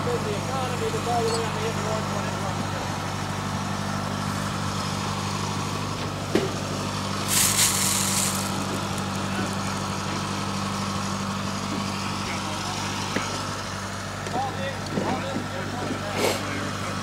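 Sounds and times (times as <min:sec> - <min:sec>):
engine idling: 0:00.0 - 0:17.0
burst of hiss: 0:07.2 - 0:08.7.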